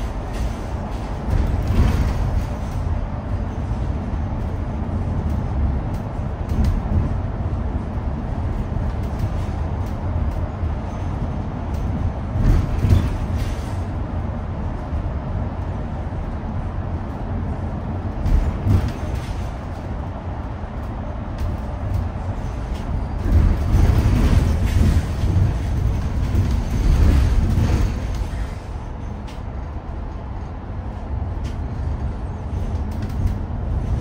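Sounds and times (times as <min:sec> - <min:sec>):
bus road rumble: 0:00.0 - 0:34.0.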